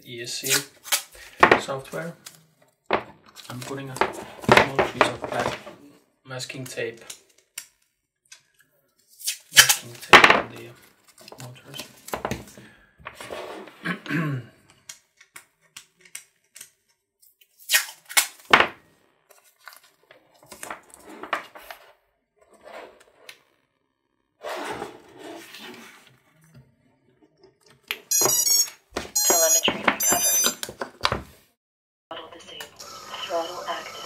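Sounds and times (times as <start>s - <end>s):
masking tape tearing: 0.4s - 1.2s, 9.1s - 10.0s, 17.4s - 18.5s
electronic beeping tones: 28.1s - 30.6s.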